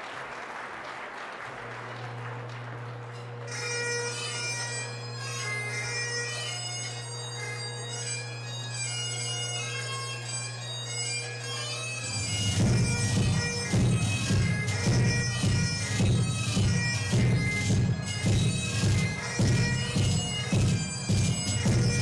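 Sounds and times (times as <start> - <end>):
audience applause: 0.0 - 3.5
bagpipe drones: 1.7 - 22.0
bagpipe chanter melody: 3.0 - 22.0.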